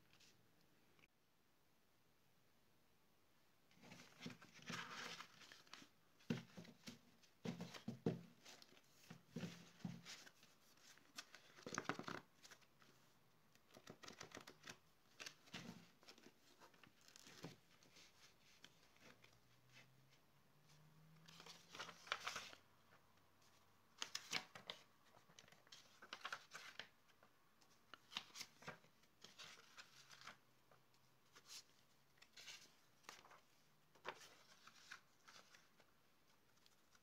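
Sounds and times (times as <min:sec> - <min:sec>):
paper sheets rustling: 0:03.8 - 0:13.0, 0:21.3 - 0:22.6, 0:27.9 - 0:30.4, 0:31.3 - 0:37.0.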